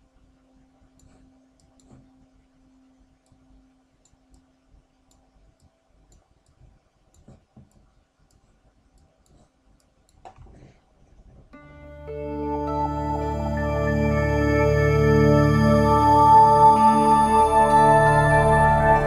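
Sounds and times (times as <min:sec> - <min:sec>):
low steady hum: 0:00.0 - 0:19.0
faint computer mouse clicks: 0:01.0 - 0:02.0, 0:05.1 - 0:10.7.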